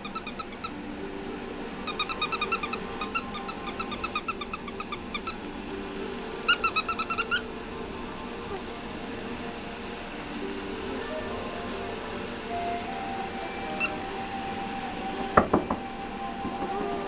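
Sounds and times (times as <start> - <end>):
squeaky dog toy squeaking: 0.0 - 0.7, 1.9 - 5.4, 6.5 - 7.4.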